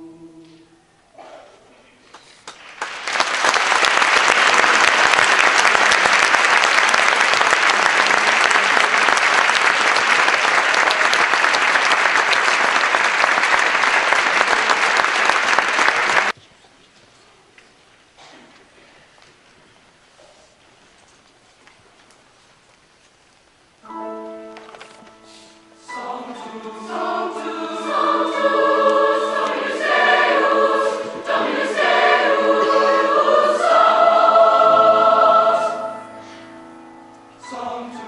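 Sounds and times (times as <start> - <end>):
audience applauding: 2.2 - 16.4.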